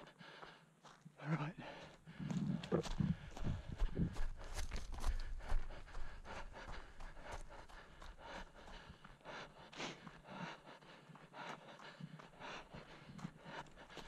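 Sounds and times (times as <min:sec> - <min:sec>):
hard breathing: 0:00.0 - 0:14.0.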